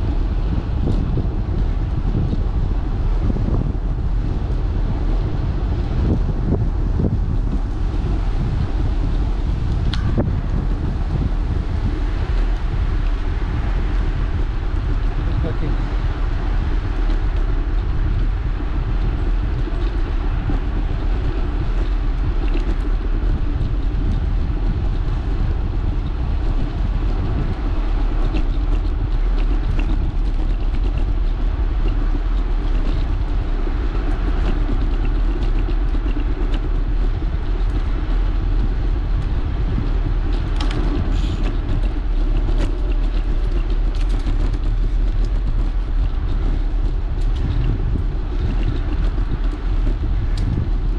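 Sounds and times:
bicycle tyres rolling on asphalt: 0:00.0 - 0:50.9
wind buffeting microphone: 0:00.0 - 0:50.9
small ticks: 0:19.4 - 0:25.3, 0:25.9 - 0:50.7.

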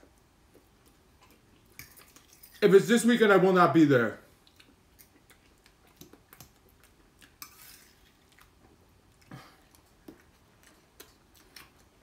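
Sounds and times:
fork scraping a plate: 0:07.4 - 0:08.1.

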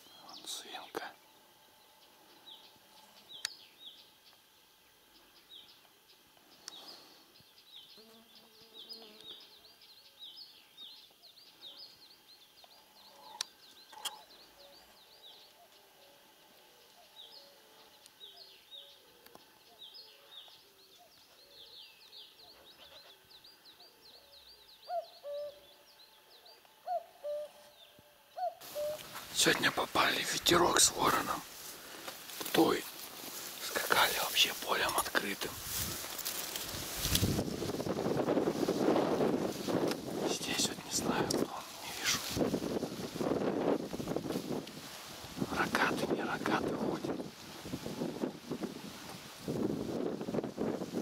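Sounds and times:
lower pitched bird calls: 0:00.0 - 0:31.5.

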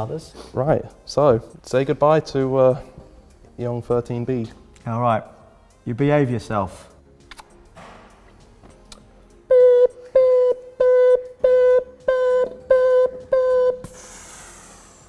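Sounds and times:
electronic beeps: 0:09.5 - 0:13.9.

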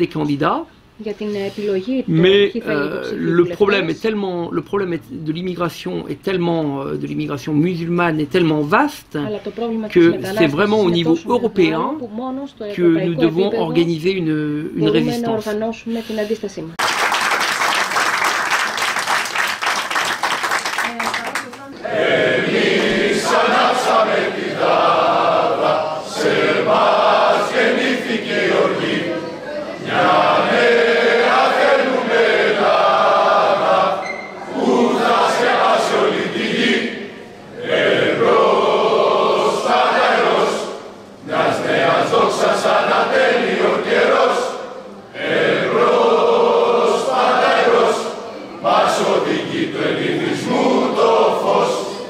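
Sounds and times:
crowd singing in unison: 0:21.8 - 0:52.0.

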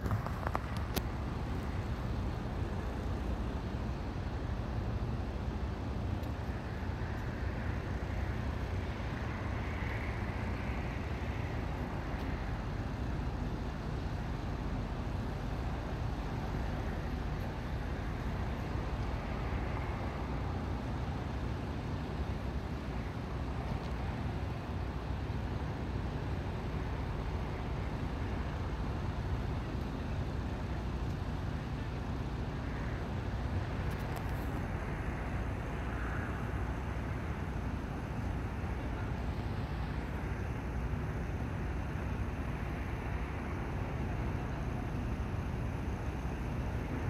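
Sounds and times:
low rumble of vehicles: 0:00.0 - 0:47.0.

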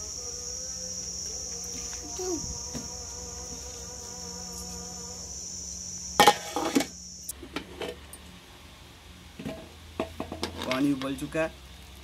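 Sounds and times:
high-pitched buzz: 0:00.0 - 0:07.3.

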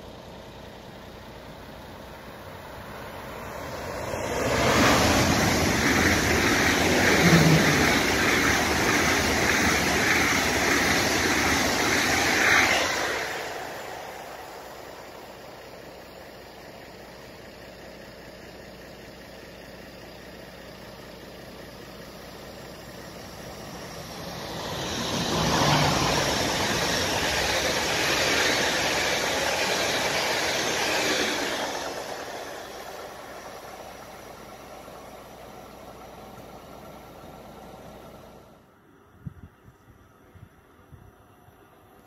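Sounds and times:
faint steady rumble: 0:00.0 - 0:42.0
train passing at speed: 0:01.6 - 0:16.8, 0:22.6 - 0:38.8.

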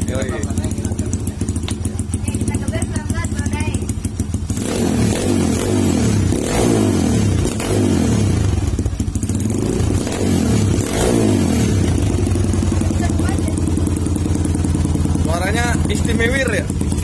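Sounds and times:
dirt bike engine revving: 0:00.0 - 0:17.0.

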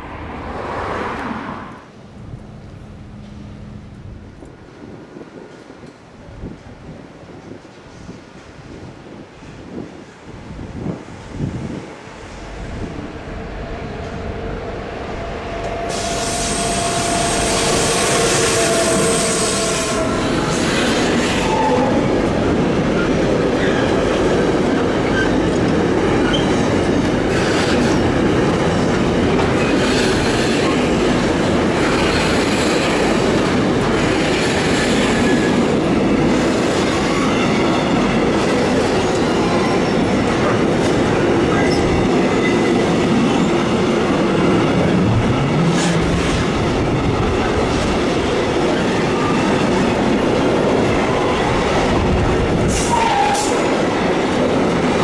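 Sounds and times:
train wheels clattering on rails: 0:15.6 - 0:55.0.

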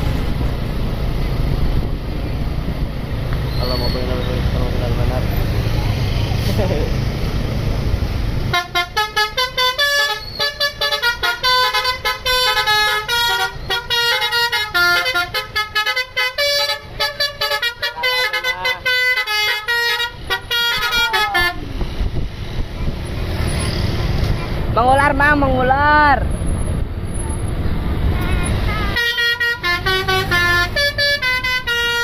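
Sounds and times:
bus engine running: 0:00.0 - 0:32.0
musical bus horn melody: 0:08.5 - 0:21.7, 0:28.2 - 0:32.0.

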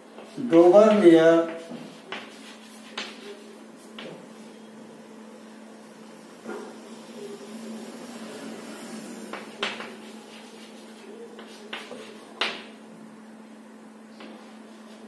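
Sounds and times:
steady low hum: 0:00.0 - 0:15.0
chalk scratching on blackboard: 0:01.6 - 0:03.9, 0:09.8 - 0:12.4.

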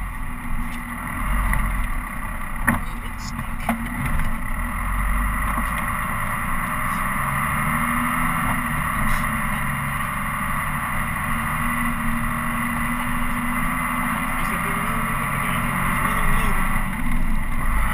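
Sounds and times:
diesel truck engine running: 0:00.0 - 0:17.9
tyre noise on snowy road: 0:00.0 - 0:17.9.

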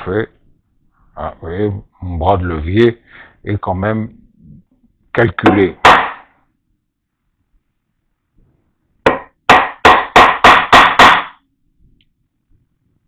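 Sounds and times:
mallet knocking on wood chisel: 0:05.4 - 0:06.2, 0:09.1 - 0:11.4.

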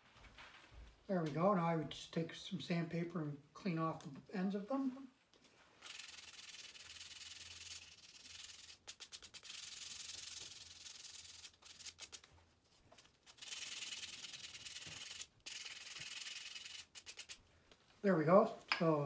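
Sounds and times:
sandpaper rubbing on wood: 0:05.8 - 0:12.2, 0:13.4 - 0:17.4.

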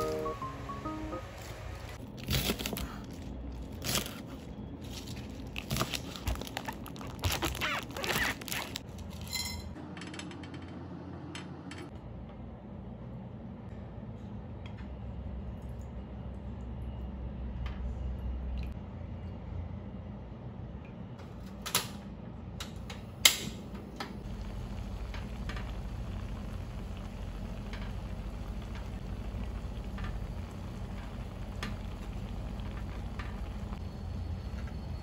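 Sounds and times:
broth simmering in a pan: 0:24.2 - 0:35.0.

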